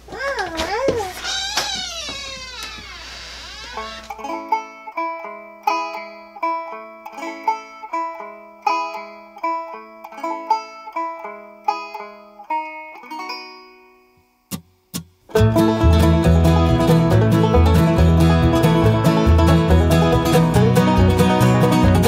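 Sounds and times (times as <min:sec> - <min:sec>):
plucked string tune: 0:04.1 - 0:13.9, 0:15.3 - 0:22.0.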